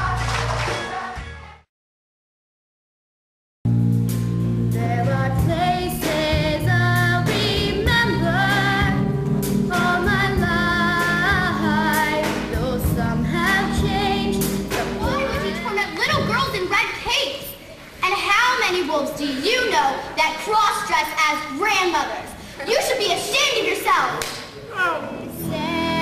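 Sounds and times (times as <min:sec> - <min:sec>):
girl singing with vibrato: 0:04.8 - 0:09.1, 0:09.7 - 0:15.7, 0:25.0 - 0:26.0.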